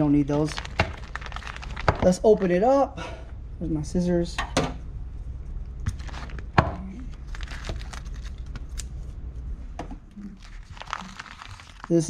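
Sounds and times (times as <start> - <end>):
plastic bag crinkling: 0.2 - 2.6, 5.9 - 6.5, 7.1 - 8.9, 10.2 - 12.0.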